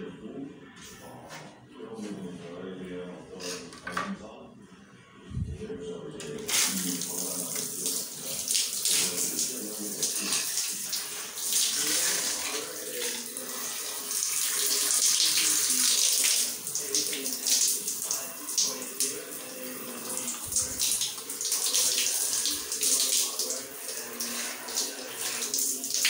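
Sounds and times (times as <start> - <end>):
shower spray hissing on tiles: 6.5 - 26.0.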